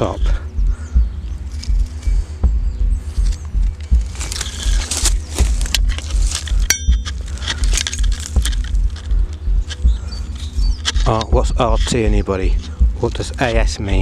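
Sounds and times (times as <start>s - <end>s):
dry twigs and stones crunching: 0.0s - 14.0s
metallic clink: 5.7s - 9.8s.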